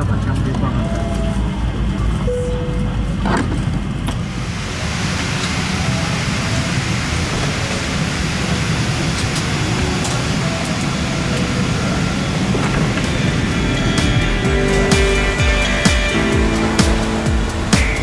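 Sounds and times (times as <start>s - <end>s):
aircraft cabin rushing noise: 3.0s - 18.0s.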